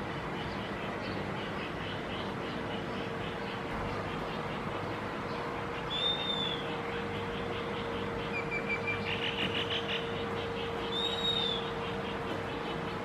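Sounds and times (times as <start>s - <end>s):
steady hum: 0.0s - 13.0s
bird chirps: 0.3s - 13.0s
bird whistling: 5.9s - 6.6s, 10.8s - 11.7s.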